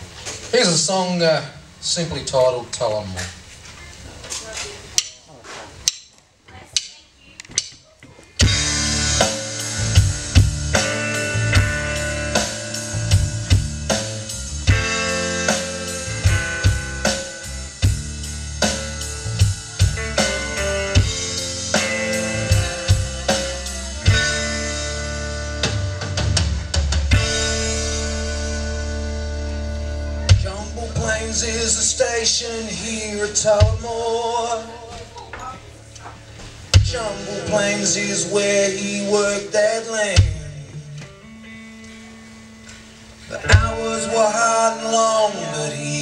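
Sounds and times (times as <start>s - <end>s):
drumstick clicks: 5.0s - 5.2s, 5.8s - 7.8s
live band playing instrumental: 8.4s - 46.0s.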